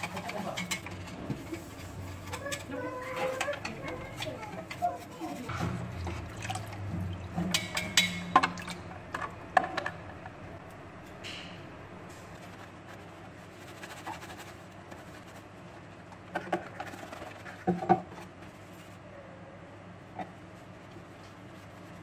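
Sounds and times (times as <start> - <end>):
sponge scrubbing plastic: 0.0 - 7.7, 12.1 - 19.0, 20.7 - 22.0.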